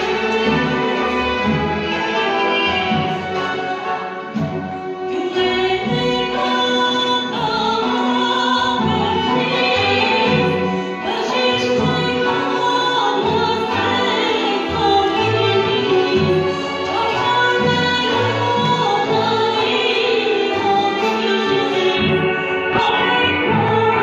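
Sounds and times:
folk ensemble with kanun and strings: 0:00.0 - 0:24.0
woman singing into a microphone: 0:05.0 - 0:24.0.

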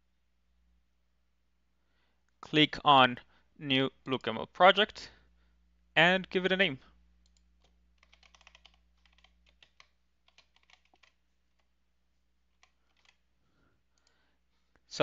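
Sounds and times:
faint keyboard typing: 0:07.2 - 0:11.8, 0:12.4 - 0:13.3.

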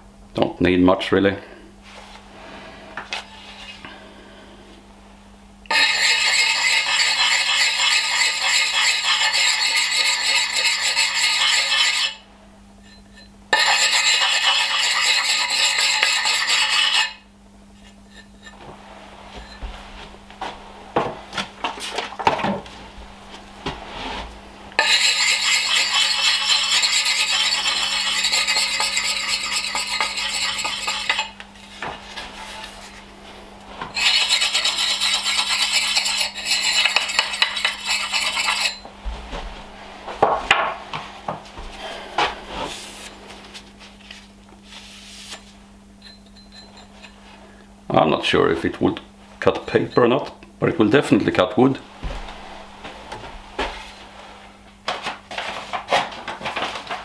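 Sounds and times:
sharpening stone scraping axe edge: 0:05.7 - 0:12.2, 0:12.8 - 0:17.2, 0:24.8 - 0:31.4, 0:34.0 - 0:38.8.

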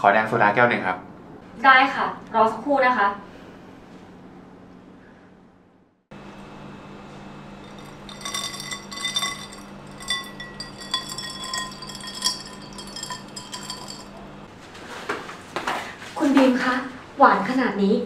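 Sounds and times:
low steady hum: 0:07.3 - 0:14.5
ice cubes clinking in glass: 0:07.6 - 0:14.2.

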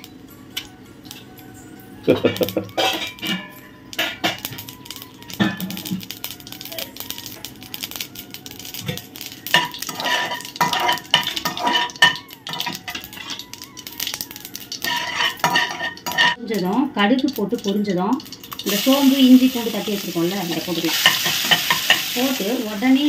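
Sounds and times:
seeds sizzling in hot oil: 0:02.0 - 0:23.0
spatula scraping a pan: 0:02.7 - 0:04.4, 0:09.5 - 0:13.4, 0:14.8 - 0:16.4.

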